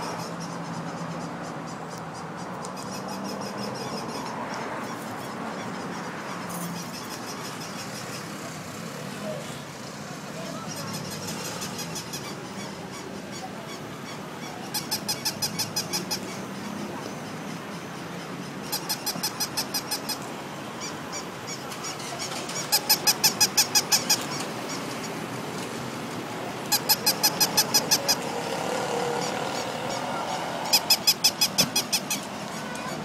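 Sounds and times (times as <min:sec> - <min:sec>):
toy puppy squeaky yips: 0:14.7 - 0:16.3, 0:18.7 - 0:20.2, 0:21.5 - 0:24.5, 0:26.7 - 0:28.2, 0:30.6 - 0:33.0.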